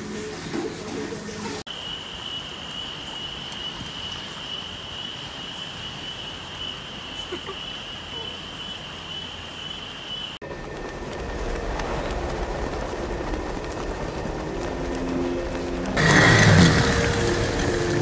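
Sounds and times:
insects trilling: 1.7 - 11.4.

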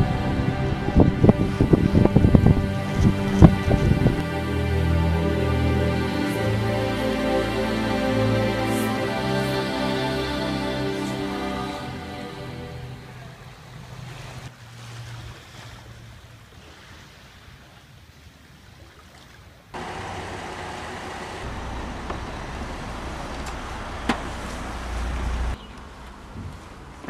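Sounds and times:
car engine rumbling: 0.0 - 10.3, 19.8 - 27.0
faint wind: 0.0 - 27.0
water noise: 0.0 - 27.0.

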